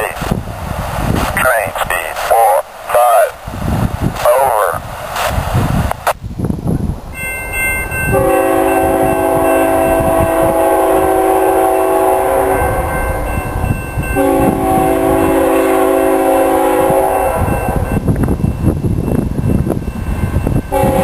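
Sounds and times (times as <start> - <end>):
wind rumbling on microphone: 0.0 - 21.0
locomotive air horn blasts: 8.1 - 13.2, 14.2 - 17.9, 20.7 - 21.0.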